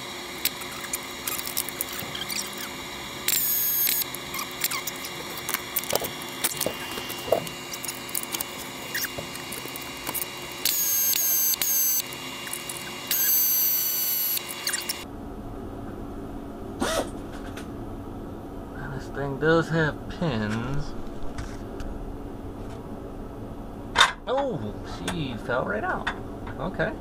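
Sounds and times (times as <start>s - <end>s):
short high-pitched squeals: 0.4s - 15.0s.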